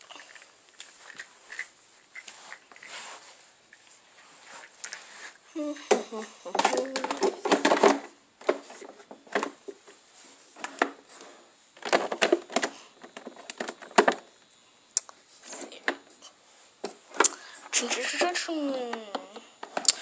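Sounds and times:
plastic toy parts clicking: 6.6 - 8.1.

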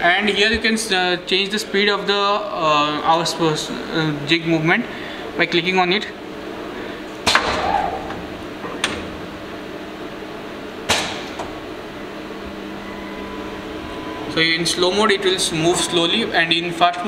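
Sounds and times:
welding machine hum: 6.3 - 17.0
sharp mechanical clunks: 10.8 - 11.6.

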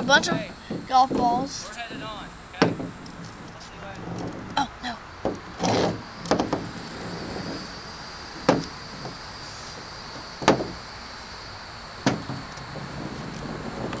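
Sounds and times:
golf balls knocking on plastic: 0.0 - 7.7, 8.4 - 9.2, 10.4 - 10.8, 12.1 - 14.0
high insect drone: 0.0 - 14.0.

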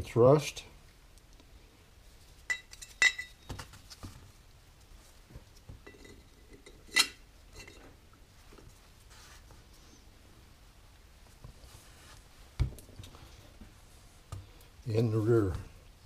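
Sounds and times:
metal bearing shells clinking: 2.5 - 3.5.

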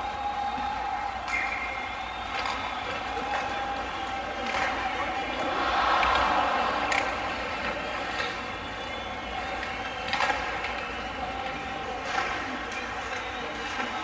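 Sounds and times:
ice rink background din: 0.0 - 14.0
skates scraping ice: 4.4 - 10.8.

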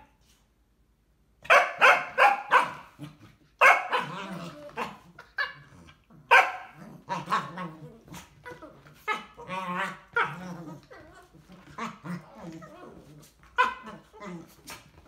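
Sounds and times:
dog barking: 1.4 - 2.9, 3.6 - 4.2, 6.3 - 6.8.

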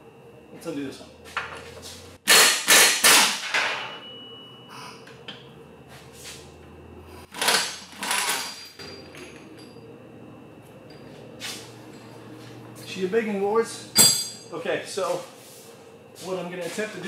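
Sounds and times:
low steady hum: 3.4 - 17.0.

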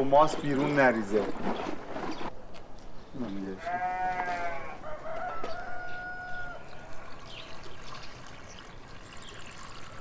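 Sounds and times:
sheep bleating: 3.6 - 4.8
water trickling into churn: 6.4 - 10.0.

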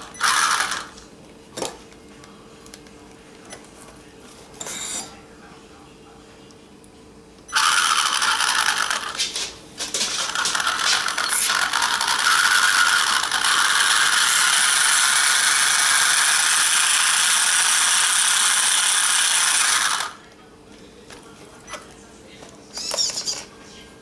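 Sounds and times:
toy car electric motor running: 0.0 - 1.0, 7.5 - 9.2, 10.2 - 20.2, 22.7 - 23.5.

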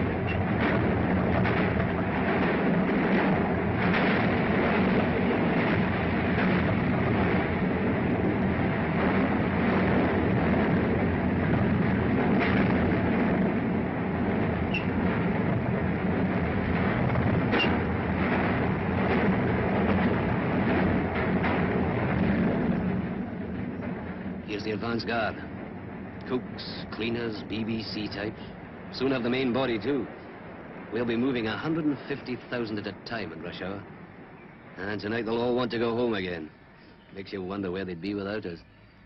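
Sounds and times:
train rumbling in a tunnel: 0.0 - 30.0
high wheel squeals: 14.6 - 15.0.

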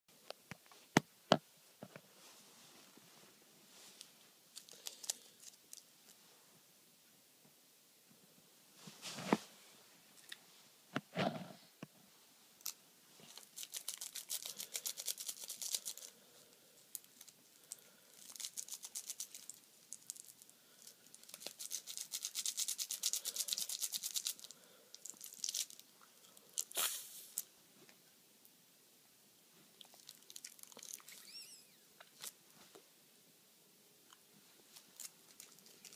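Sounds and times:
candy crushed in cellophane wrapper: 4.5 - 6.2, 12.6 - 16.2, 16.9 - 27.5, 29.8 - 31.2, 34.9 - 35.9.

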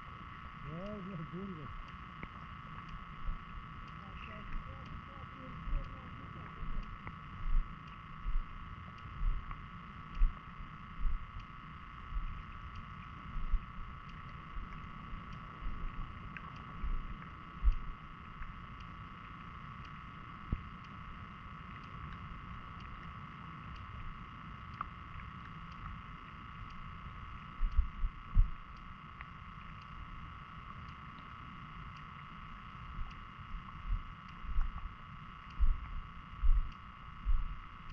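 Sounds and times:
steady underwater hum: 0.0 - 37.9
dull underwater thumps: 27.6 - 28.6, 35.6 - 37.5.

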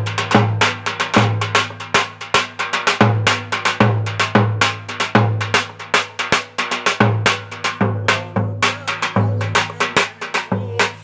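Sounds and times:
deep bass drum strokes: 3.0 - 11.0.

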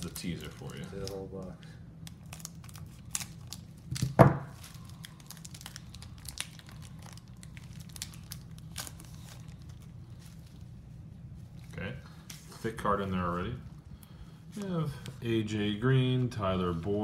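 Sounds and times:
foil pack crinkling and tearing: 0.0 - 10.7.

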